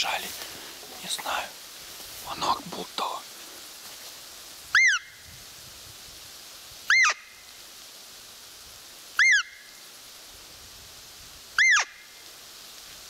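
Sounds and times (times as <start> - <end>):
deer call squeaky peeps: 4.7 - 5.2, 6.9 - 7.3, 9.2 - 9.6, 11.6 - 12.0.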